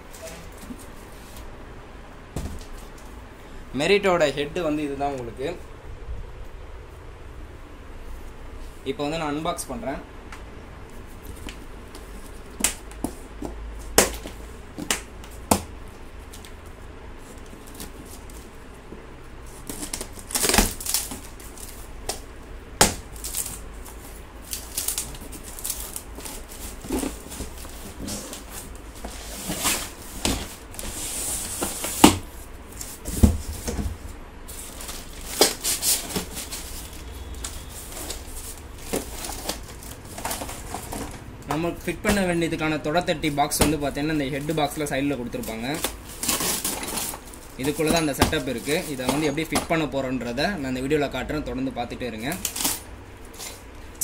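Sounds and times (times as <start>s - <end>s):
packaging rustling: 23.0s - 42.5s, 43.2s - 49.9s.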